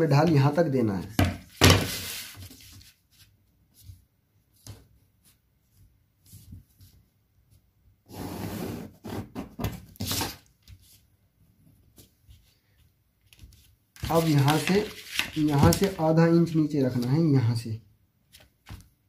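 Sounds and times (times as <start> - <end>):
ruler and paper scraping: 1.5 - 3.3.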